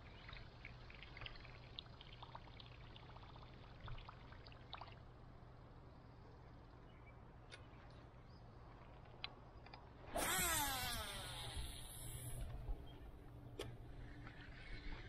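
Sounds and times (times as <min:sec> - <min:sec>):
fishing line hissing out: 0:10.1 - 0:12.4
fishing reel spool whining: 0:10.1 - 0:12.5.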